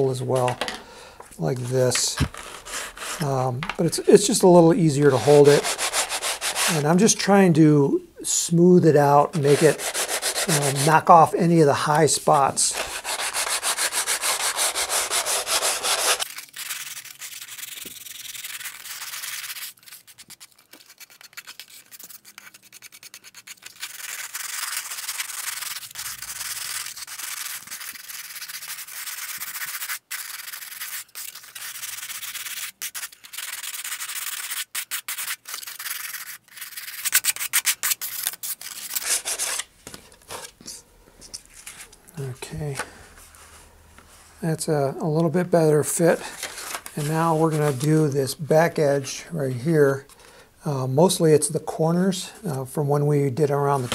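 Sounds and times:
sanding back and forth: 0:02.3 - 0:07.1, 0:09.3 - 0:11.2, 0:12.6 - 0:38.2.

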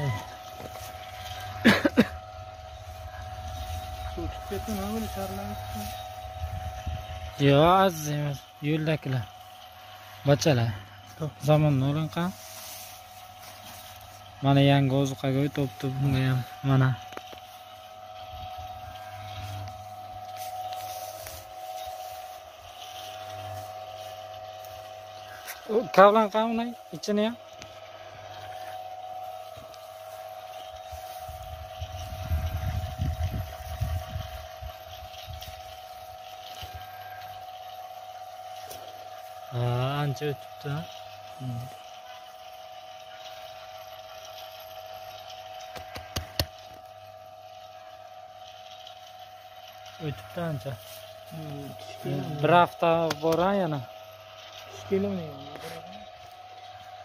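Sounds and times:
steady hum: 0:00.0 - 0:57.0
straw rustling: 0:10.8 - 0:33.8.

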